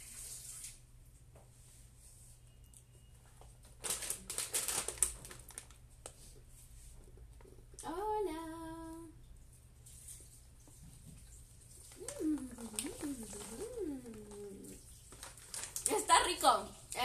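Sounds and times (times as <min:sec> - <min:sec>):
plastic snack bag crinkling: 0:03.6 - 0:06.2, 0:11.9 - 0:16.4
person humming: 0:12.0 - 0:14.8.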